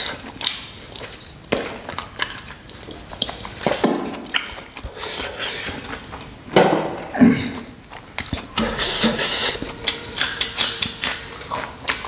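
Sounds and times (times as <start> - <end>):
mouth clicks and smacks: 0.0 - 6.4, 7.6 - 12.0
wet sucking and slurping: 2.7 - 6.2, 7.6 - 12.0.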